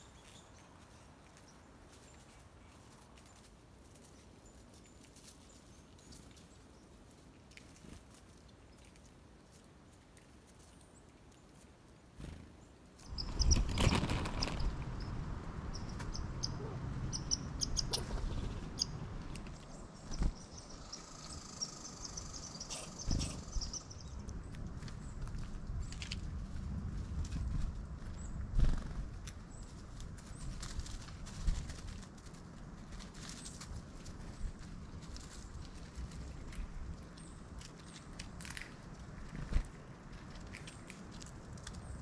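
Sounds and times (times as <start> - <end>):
songbirds chirping: 0.0 - 26.2.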